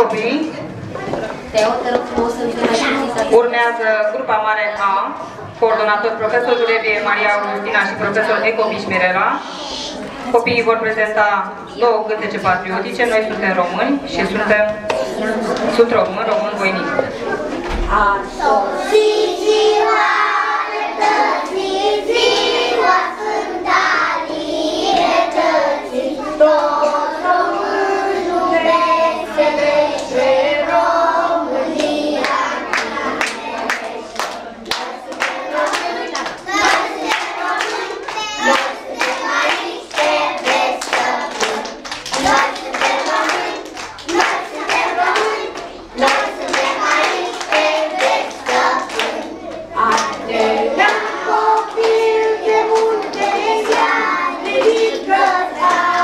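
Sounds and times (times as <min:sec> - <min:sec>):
children singing together: 0:17.0 - 0:56.0
hand clapping: 0:32.2 - 0:52.1.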